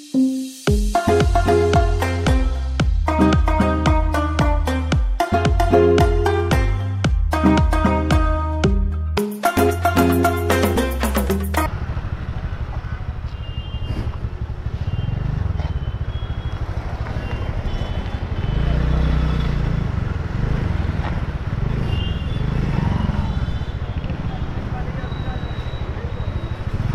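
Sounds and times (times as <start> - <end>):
background music: 0.0 - 11.7
city traffic: 0.9 - 26.9
scooter engine rumble: 11.7 - 26.9.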